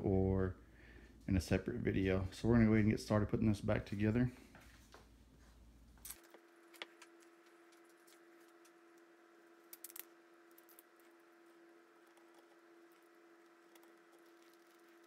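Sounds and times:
faint steady hum: 0:00.0 - 0:15.0
small metal parts clicking: 0:09.6 - 0:11.2.

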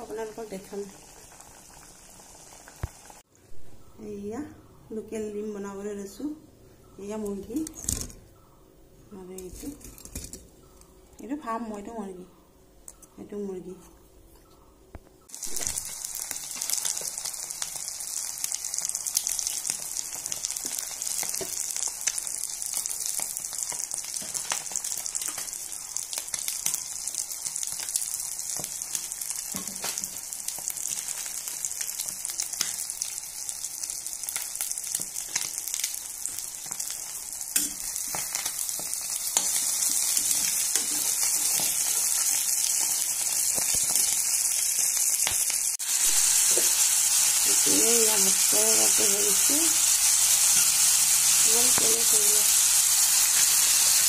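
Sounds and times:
eggs sizzling in hot oil: 0:00.0 - 0:03.3, 0:15.3 - 0:54.0.

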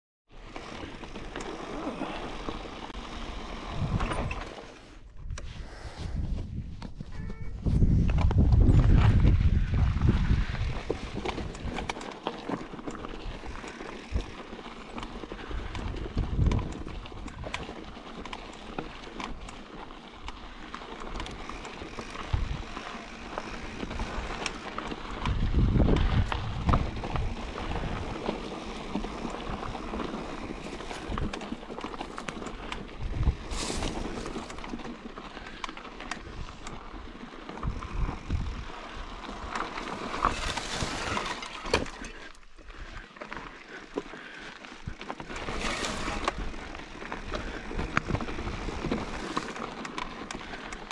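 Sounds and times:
bike tyres rolling on dirt: 0:00.3 - 0:50.9
wind buffeting microphone: 0:05.2 - 0:11.9, 0:15.2 - 0:17.7, 0:21.2 - 0:28.3, 0:32.6 - 0:33.6, 0:36.2 - 0:41.8
bike rattling and knocking: 0:06.9 - 0:50.9.

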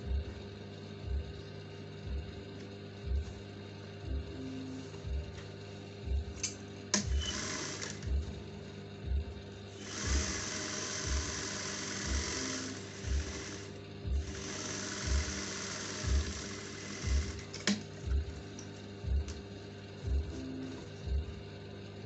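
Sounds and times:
background music with slow beat: 0:00.0 - 0:22.0
sewing machine stitching: 0:07.0 - 0:08.1, 0:09.8 - 0:13.7, 0:14.3 - 0:17.8.

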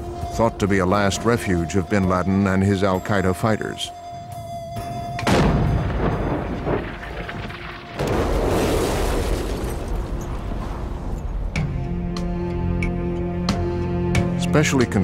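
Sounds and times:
bomb explosions with rolling rumble: 0:05.2 - 0:12.0.

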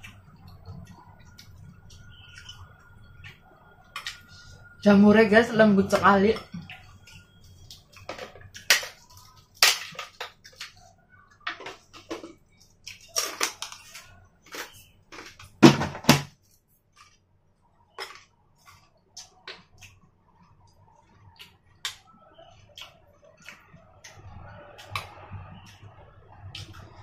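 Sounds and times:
crunching shrimp crackers: 0:06.7 - 0:15.6, 0:16.4 - 0:27.0.

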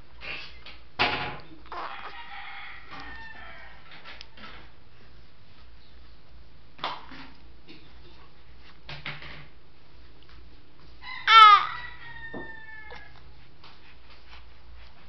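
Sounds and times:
rooster crowing: 0:01.8 - 0:04.0, 0:11.0 - 0:13.2.

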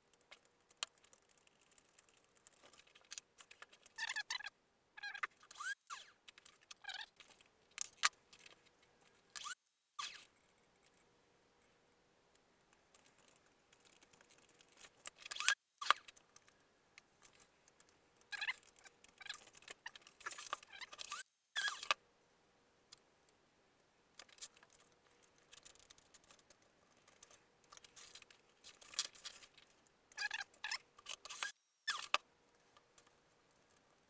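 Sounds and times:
foam squeaking and scraping: 0:04.0 - 0:07.2, 0:19.2 - 0:21.9.

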